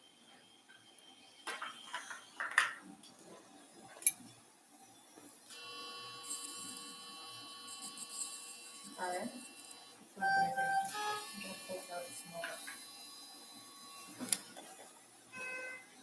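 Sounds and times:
electrosurgical activation tone: 5.5s - 14.4s.

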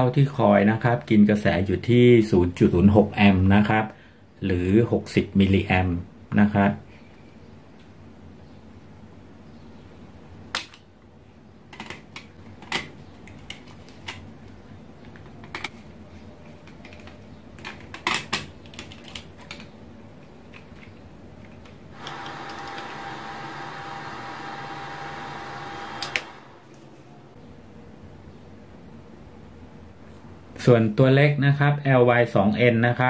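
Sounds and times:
steady buzzing hiss: 21.9s - 27.4s
wire connectors clicking: 24.8s - 27.1s.

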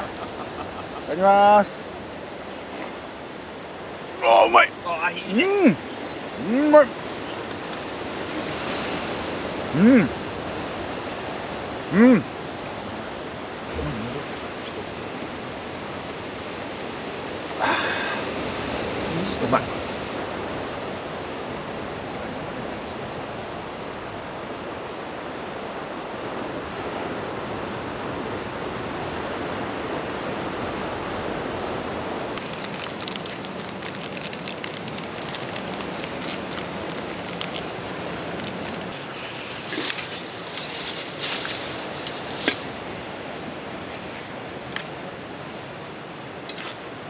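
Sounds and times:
surf: 0.0s - 47.0s
wind: 0.0s - 47.0s
plastic bag crinkling: 32.4s - 41.7s.

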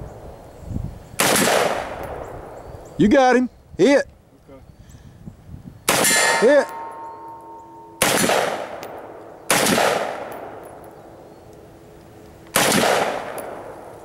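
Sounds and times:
gunshots with echo: 1.2s - 2.3s, 5.9s - 10.6s, 12.6s - 13.7s
steel target ringing: 5.9s - 9.4s.

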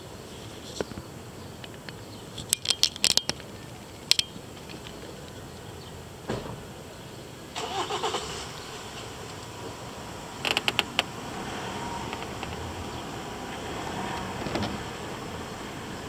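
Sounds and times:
outdoor background noise: 0.0s - 16.0s
uneven noisy sound: 0.0s - 16.0s
sharp clicks and clinks: 1.7s - 5.0s.

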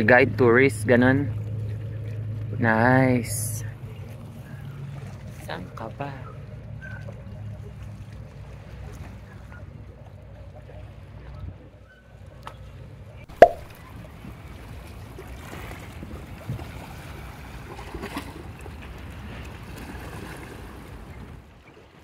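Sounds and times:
small waves sloshing among rocks: 3.6s - 22.0s
sharp knock: 13.4s - 13.7s.

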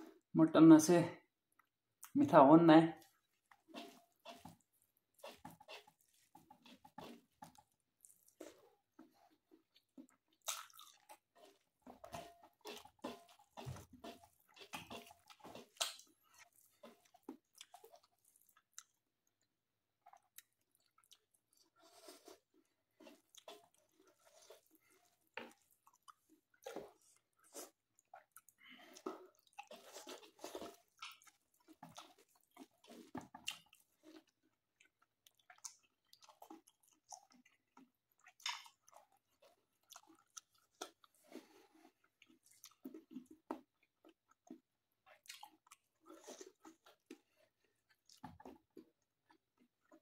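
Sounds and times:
person chewing food: 3.0s - 50.0s.

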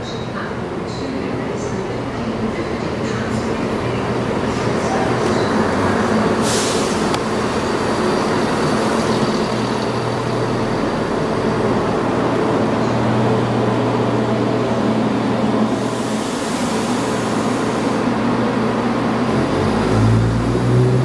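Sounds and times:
train diesel engines droning: 0.0s - 21.0s
air hiss: 6.4s - 7.2s.

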